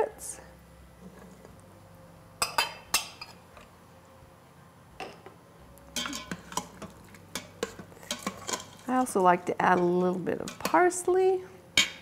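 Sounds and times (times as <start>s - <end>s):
metal spoon clinking and scraping: 5.9s - 10.8s.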